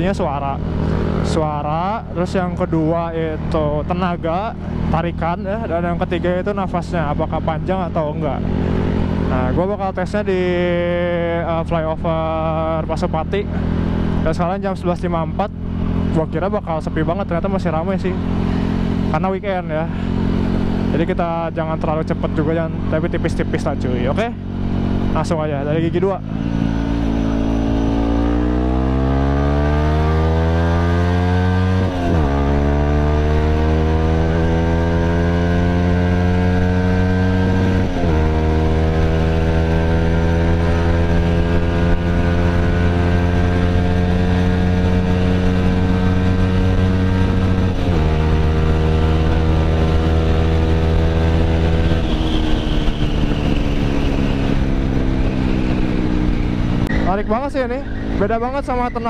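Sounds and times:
motorcycle engine accelerating: 0.0 - 59.0
wind noise on microphone: 40.6 - 57.2.

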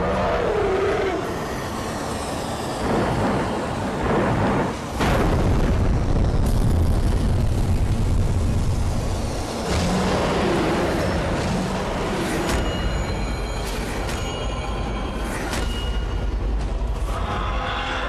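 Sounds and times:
deep rumble with booms: 2.8 - 11.4.

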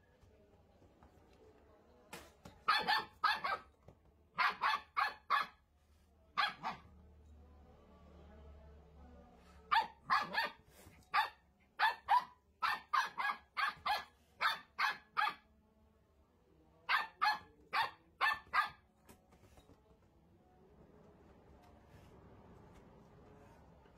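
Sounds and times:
puppy barking in high yaps: 2.6 - 3.7, 4.4 - 5.6, 6.4 - 6.9, 9.7 - 15.4, 16.9 - 18.8.

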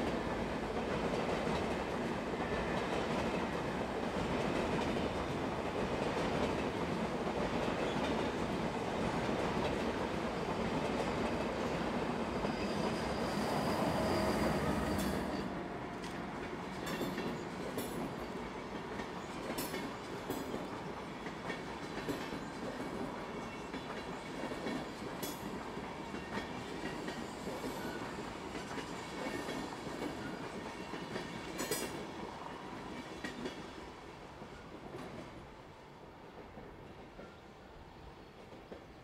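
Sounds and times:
electric train rolling past: 0.0 - 39.0
train wheels clicking over rail joints: 16.0 - 32.0.

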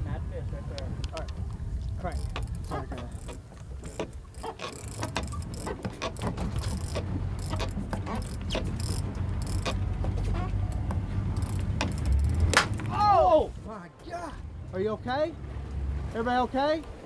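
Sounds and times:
fishing reel clicking and ratcheting: 2.0 - 9.8, 11.3 - 12.4.

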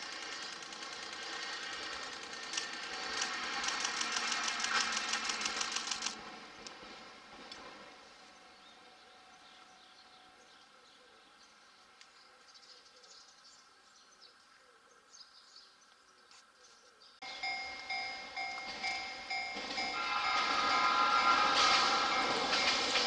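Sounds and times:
train noise: 0.0 - 11.1, 17.2 - 23.0
train with steady tones: 0.0 - 12.0, 17.2 - 23.0.

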